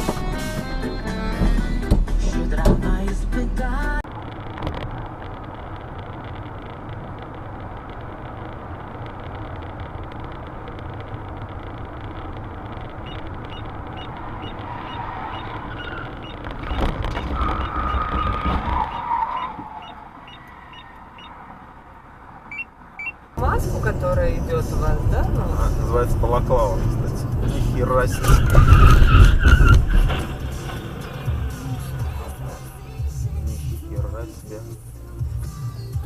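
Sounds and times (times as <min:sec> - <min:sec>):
car road and engine noise: 0:00.0 - 0:36.0
light regular ticking: 0:05.1 - 0:17.0
held tone: 0:22.5 - 0:23.2.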